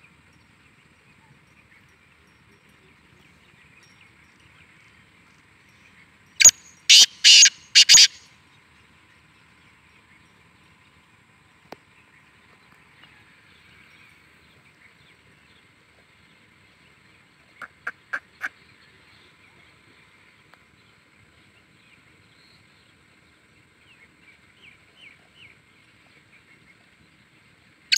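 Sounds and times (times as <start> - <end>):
bird calling harsh grating notes: 6.4 - 8.2.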